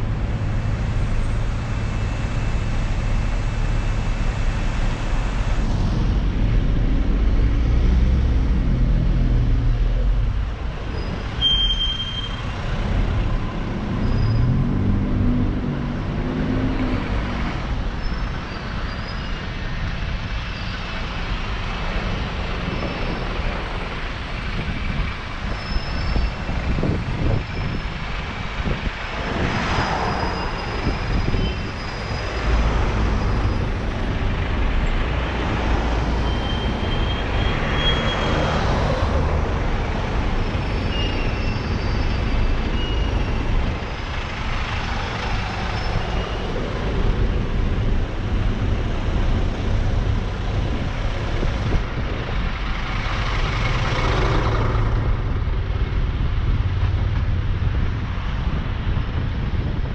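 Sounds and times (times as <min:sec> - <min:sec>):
wind and road rush: 0:00.0 - 0:59.9
buses and cars idling: 0:17.2 - 0:29.5, 0:30.3 - 0:59.9.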